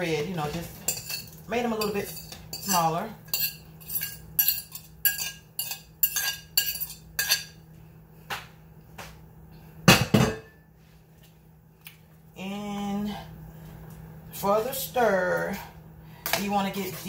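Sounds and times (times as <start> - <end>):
spoon scraping a plate: 0.9 - 7.6.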